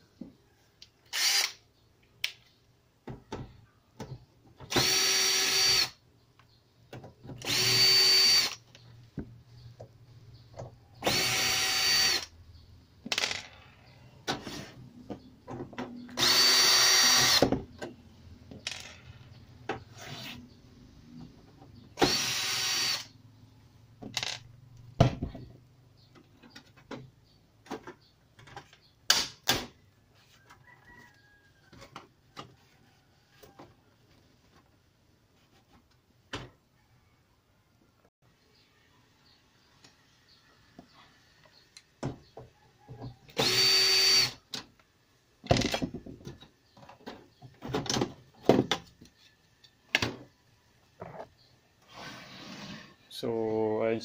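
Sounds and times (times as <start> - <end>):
cordless drill whirring: 1.1 - 1.6, 4.7 - 5.9, 7.4 - 8.6, 11.0 - 12.3, 16.2 - 17.5, 22.0 - 23.1, 43.4 - 44.4.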